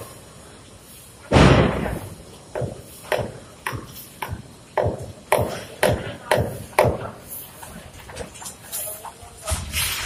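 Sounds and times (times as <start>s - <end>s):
heavy thud: 1.3s - 3.8s.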